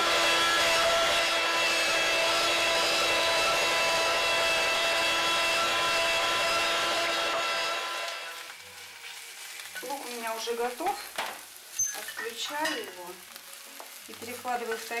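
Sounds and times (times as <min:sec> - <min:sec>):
electric meat grinder whining: 0:00.0 - 0:09.1.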